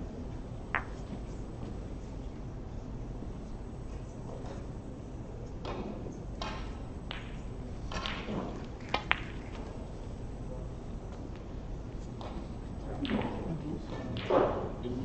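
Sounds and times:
snooker balls clicking: 0.7s - 1.3s, 5.7s - 10.2s, 12.0s - 14.8s.

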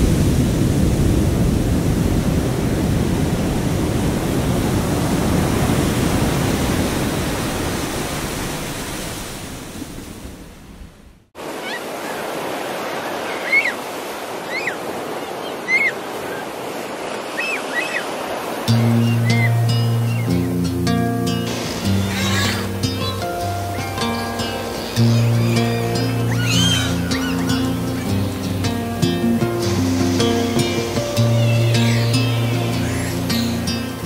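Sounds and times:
ocean surf breaking: 0.0s - 34.0s
gull calling: 11.5s - 20.7s, 21.4s - 28.9s, 29.6s - 34.0s.

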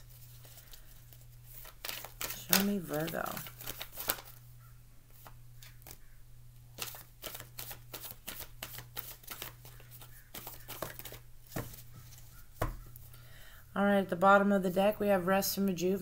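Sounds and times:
cards being shuffled: 0.0s - 4.4s, 5.1s - 6.1s, 6.8s - 12.8s.

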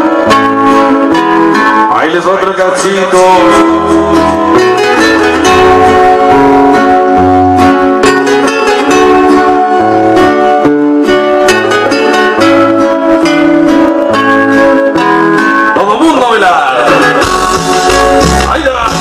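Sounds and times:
dance music over sound system: 15.9s - 19.0s.

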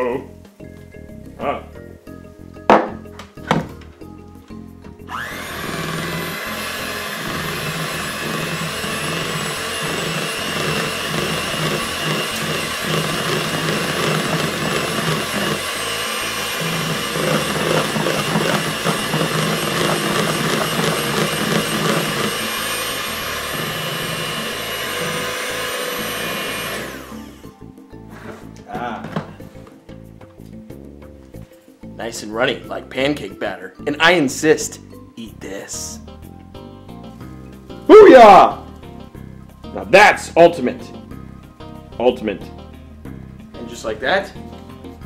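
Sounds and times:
electric hand mixer whipping batter: 5.1s - 28.4s.

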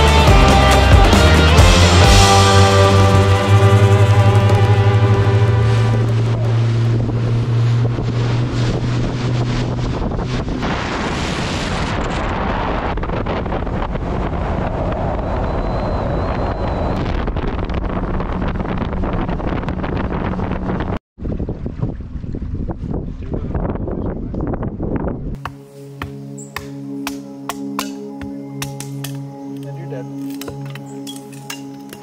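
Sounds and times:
outboard motor running: 0.0s - 11.7s
water rushing past hull: 0.0s - 23.2s
wind buffeting microphone: 2.9s - 25.4s.

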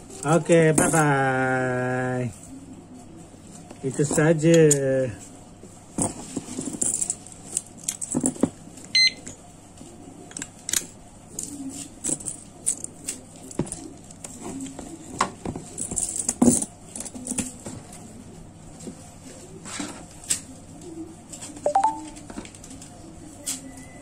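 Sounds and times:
short high beep: 21.7s - 22.2s.

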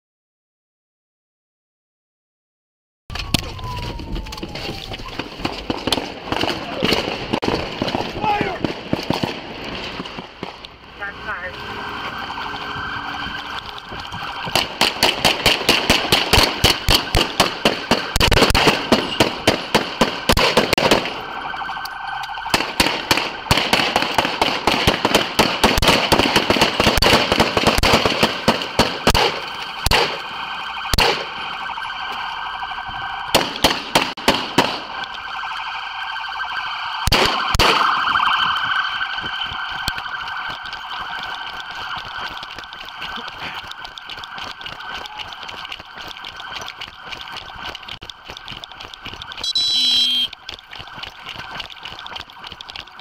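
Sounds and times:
steady siren tone: 3.1s - 53.0s
gunfire in rapid strings: 14.5s - 21.2s, 22.5s - 30.2s, 30.9s - 31.4s, 33.3s - 34.9s, 37.0s - 37.9s.

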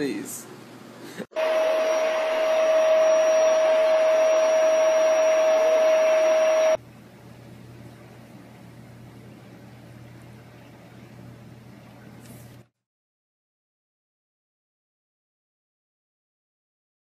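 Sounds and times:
electric motor whirring: 1.4s - 6.8s.

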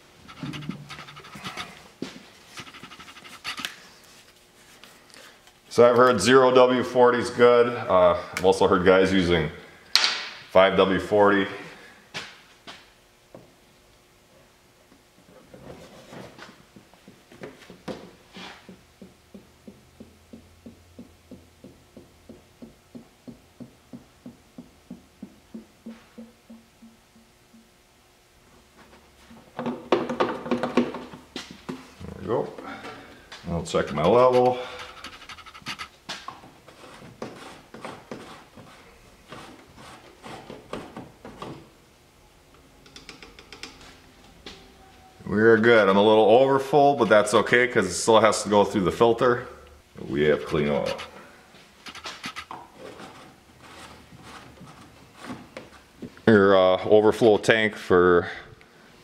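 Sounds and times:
dipstick scraping and knocking: 0.3s - 3.7s, 33.7s - 41.6s, 51.9s - 55.8s.

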